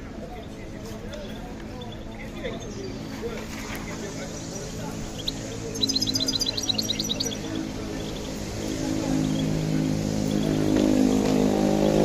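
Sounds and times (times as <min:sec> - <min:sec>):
low multi-tone hum: 0:00.0 - 0:12.0
goldfinch twittering: 0:04.2 - 0:12.0.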